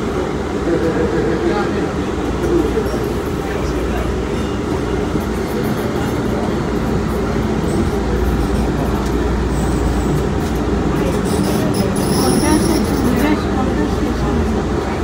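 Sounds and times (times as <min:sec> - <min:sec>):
train rumbling through tunnel: 0:00.0 - 0:15.0.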